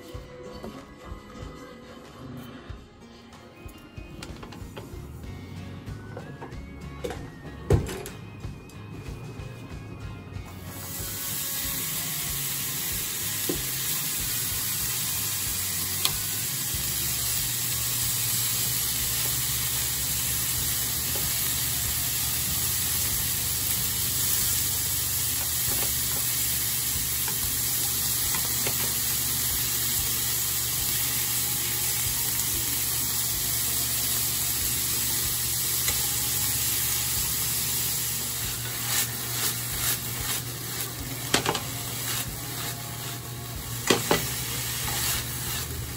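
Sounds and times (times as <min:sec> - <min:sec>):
beef sizzling in frying pan: 0:10.6 - 0:45.9.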